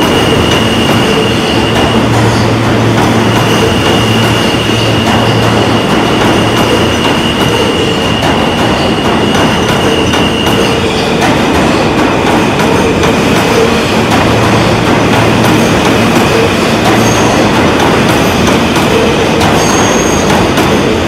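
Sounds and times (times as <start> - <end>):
subway train rumbling on rails: 0.0 - 21.0.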